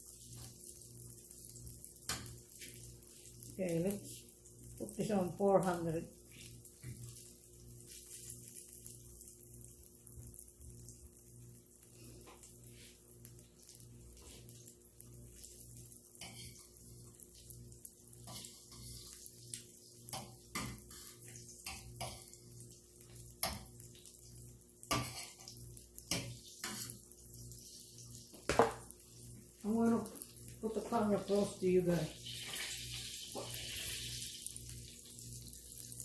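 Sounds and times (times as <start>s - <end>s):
butter sizzling in pan: 0.0s - 36.0s
fork scraping and tapping pan: 16.2s - 16.7s, 24.9s - 27.0s.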